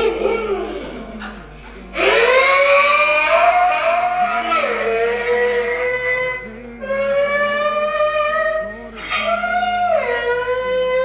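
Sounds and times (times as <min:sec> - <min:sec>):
person singing long notes: 0:00.0 - 0:11.0.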